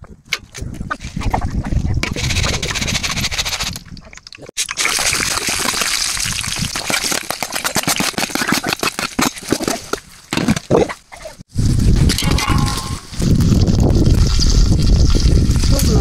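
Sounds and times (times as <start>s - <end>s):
water pouring and splashing: 0.9s - 10.2s, 13.1s - 16.0s.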